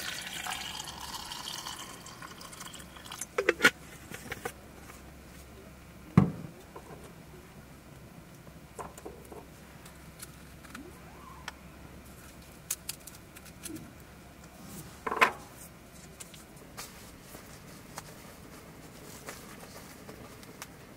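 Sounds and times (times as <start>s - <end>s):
faint steady hum: 0.0s - 20.9s.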